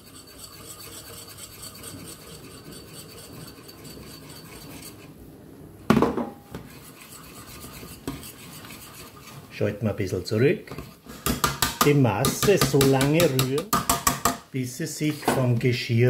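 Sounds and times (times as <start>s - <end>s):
whisk scraping in a metal pot: 0.0s - 5.2s, 6.5s - 14.4s.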